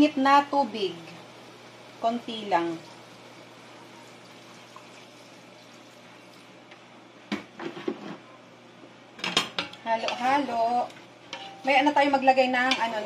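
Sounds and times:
water pouring into pot: 2.8 - 6.6.

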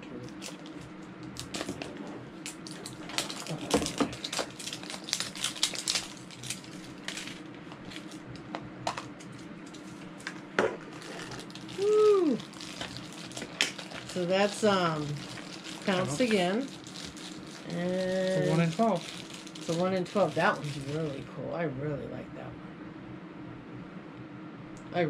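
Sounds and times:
plastic wrapper crinkling: 0.3 - 10.0, 10.8 - 21.0.

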